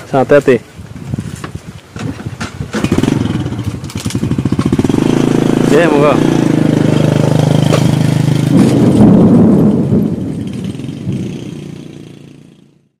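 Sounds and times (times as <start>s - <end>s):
small motorcycle engine revving: 2.7s - 9.8s, 10.4s - 12.9s.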